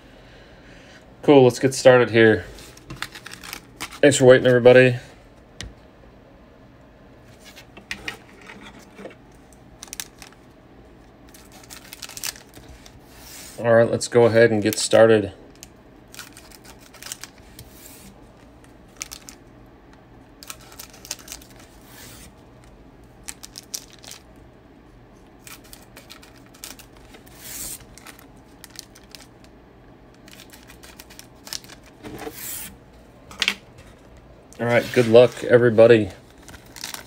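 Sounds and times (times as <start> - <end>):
foil wrappers crinkling: 2.5 - 4.6, 9.5 - 10.5, 11.3 - 13.6, 15.5 - 19.5, 20.4 - 24.3, 25.4 - 29.5, 30.2 - 32.6, 34.7 - 37.0.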